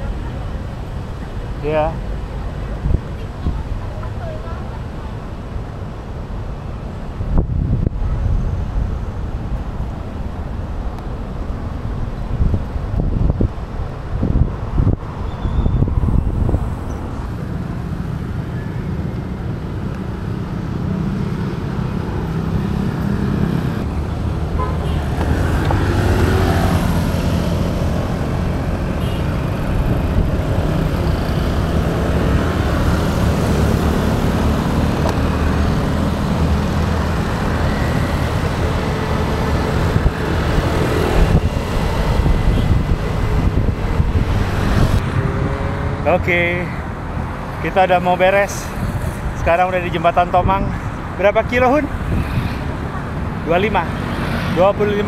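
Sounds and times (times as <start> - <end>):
cars and motorcycles passing: 0.0 - 55.0
air rumbling past microphone: 7.2 - 18.4.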